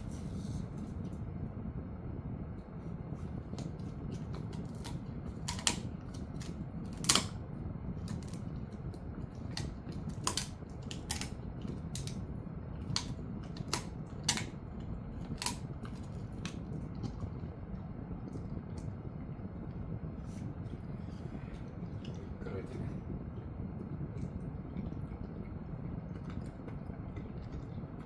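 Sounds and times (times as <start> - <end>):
low hum: 0.0 - 28.0
dog teeth crunching chew: 3.1 - 18.9, 24.1 - 28.0.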